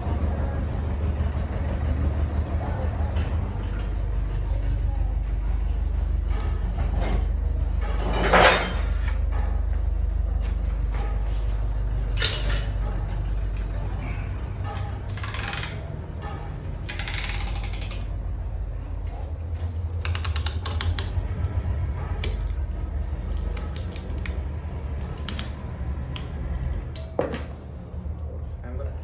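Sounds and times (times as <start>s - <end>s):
steady low hum: 0.0s - 29.0s
metal clicks and clinks: 16.9s - 18.1s.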